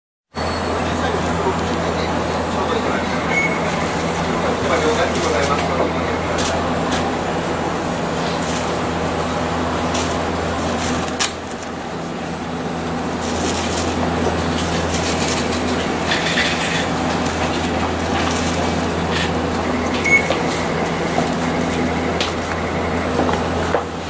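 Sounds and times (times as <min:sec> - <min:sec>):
tram interior hum and rumble: 0:00.3 - 0:24.0
short high beep: 0:03.3 - 0:03.7, 0:20.0 - 0:20.3.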